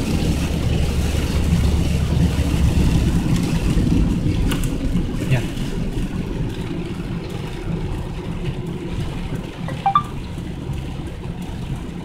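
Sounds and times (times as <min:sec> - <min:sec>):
road and engine rumble in car: 0:00.0 - 0:12.0
short high-pitched chirp: 0:09.7 - 0:10.2.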